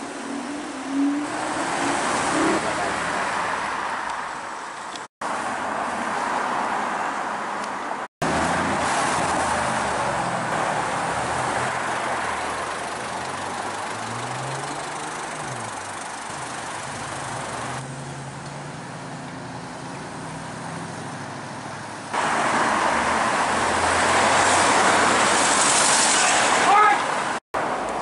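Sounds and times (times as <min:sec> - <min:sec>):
cars driving past: 0:00.0 - 0:04.4, 0:05.2 - 0:28.0
traffic: 0:00.0 - 0:28.0
engine revving: 0:08.2 - 0:25.9.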